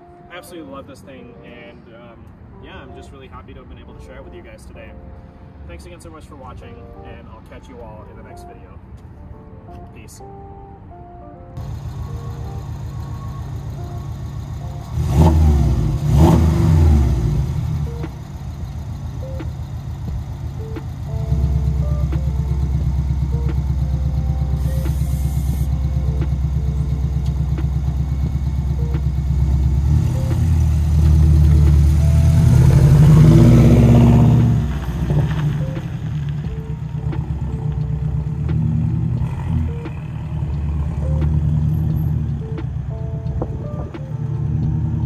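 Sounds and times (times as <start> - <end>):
car driving off: 11.6 - 45.0
car engine idling: 11.6 - 45.0
car engine revving: 11.6 - 45.0.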